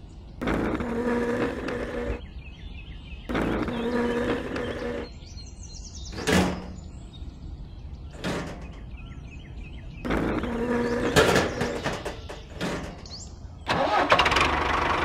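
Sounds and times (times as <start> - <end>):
birds chirping: 0.0 - 15.0
small motor whirring: 0.4 - 2.2, 3.3 - 5.1.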